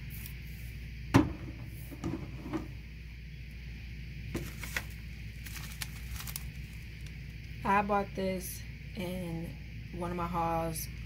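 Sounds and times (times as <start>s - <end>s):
background hum: 0.0s - 11.0s
plastic wrapper rustling: 4.4s - 7.3s.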